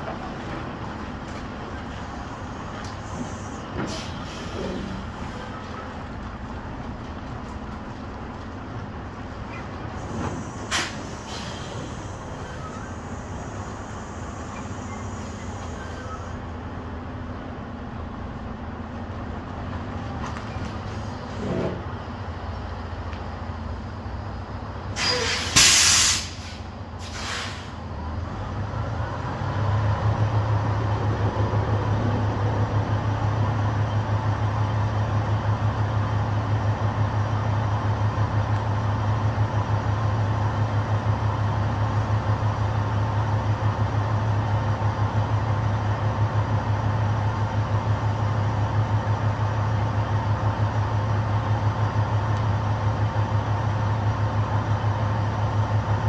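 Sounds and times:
diesel engine droning: 0:00.0 - 0:56.0
air brakes hissing: 0:02.2 - 0:05.4, 0:10.0 - 0:16.4, 0:24.9 - 0:27.8.

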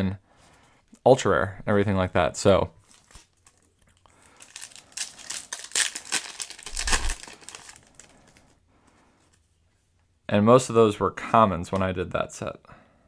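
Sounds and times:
foil pack tearing and crinkling: 0:04.2 - 0:08.5.

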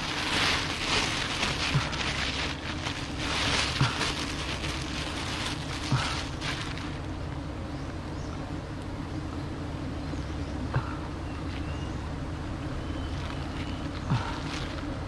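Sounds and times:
plastic bag rustling: 0:00.0 - 0:07.3, 0:13.0 - 0:15.0
bees humming: 0:00.0 - 0:15.0.

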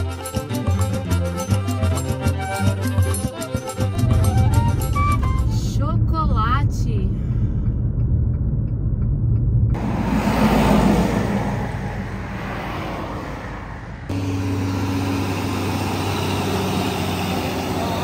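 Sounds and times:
car engine and road noise: 0:00.0 - 0:18.0
wind and tyre hiss: 0:09.8 - 0:18.0.

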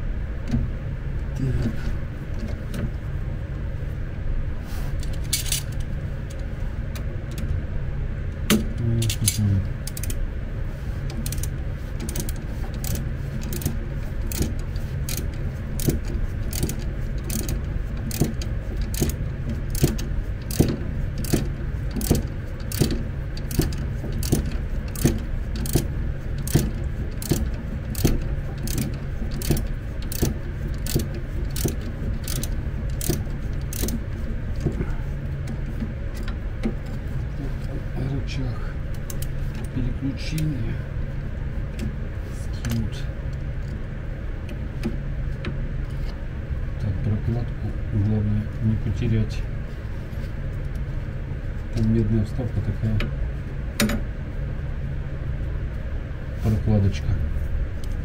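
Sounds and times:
low hum: 0:00.0 - 0:58.0
wrench clicking: 0:08.5 - 0:10.2, 0:11.1 - 0:34.0.

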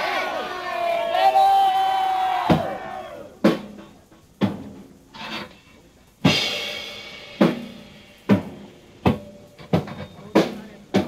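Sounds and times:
heavy drum hits: 0:02.4 - 0:02.8, 0:03.4 - 0:04.9, 0:06.2 - 0:11.0
cymbal crash ringing: 0:06.3 - 0:10.7.

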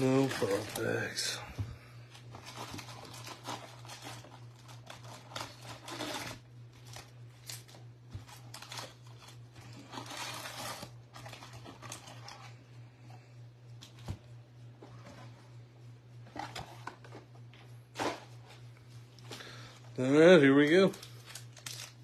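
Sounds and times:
card packs crinkling: 0:00.0 - 0:01.4, 0:02.1 - 0:12.5, 0:17.9 - 0:22.0
steady low hum: 0:00.0 - 0:22.0.

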